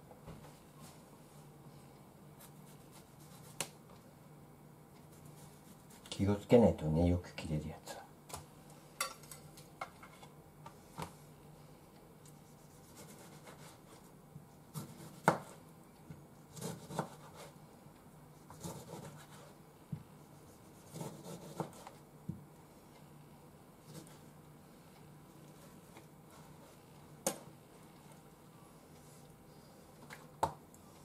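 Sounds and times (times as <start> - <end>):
knife slicing tomato: 14.7 - 15.6, 16.5 - 17.6, 18.4 - 19.6, 20.5 - 22.0.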